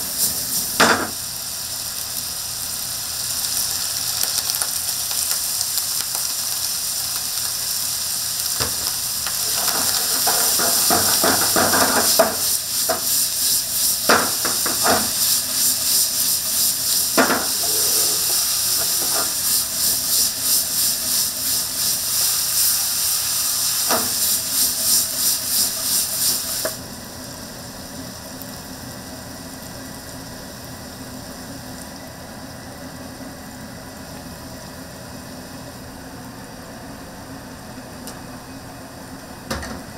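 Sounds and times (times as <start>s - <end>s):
food sizzling in a frying pan: 0.0s - 35.8s
rhythmic scraping in a pan: 8.6s - 26.8s.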